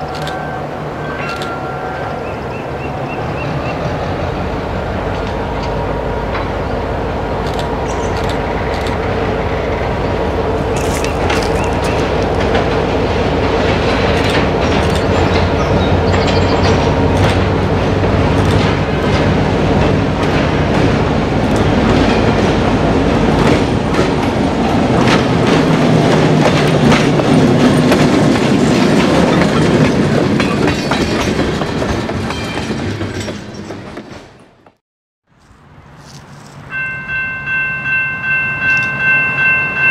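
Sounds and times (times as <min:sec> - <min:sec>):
train rumble: 0:00.0 - 0:34.8
diesel locomotive engine: 0:00.0 - 0:39.9
wheels clicking over rail joints: 0:10.7 - 0:34.6.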